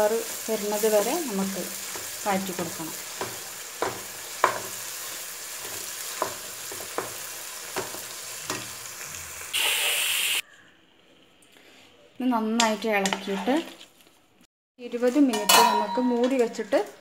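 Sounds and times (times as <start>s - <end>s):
onions sizzling in oil: 0.0s - 10.4s
chicken sizzling loudly: 0.0s - 10.5s
spatula scraping pan: 13.0s - 13.9s.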